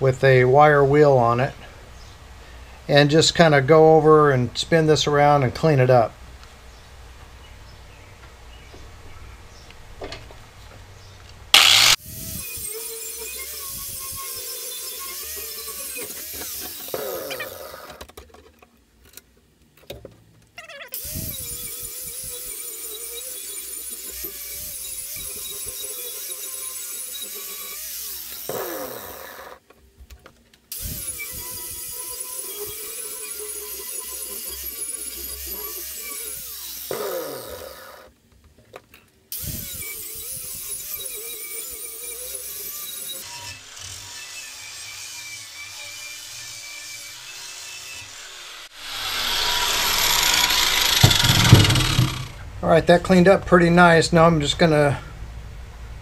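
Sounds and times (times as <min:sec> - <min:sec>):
angle grinder with wire wheel: 0:11.5 - 0:18.0, 0:20.9 - 0:29.6, 0:30.7 - 0:38.1, 0:39.3 - 0:52.4.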